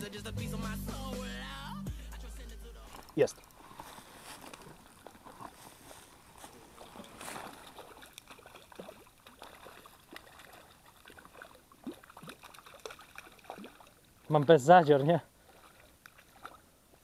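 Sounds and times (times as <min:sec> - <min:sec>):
fish splashing in water: 0:04.5 - 0:14.4, 0:15.4 - 0:16.7.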